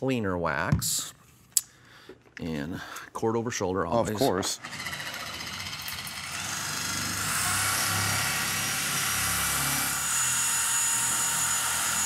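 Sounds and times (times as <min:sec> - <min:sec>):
electric polisher running: 0:04.6 - 0:12.0.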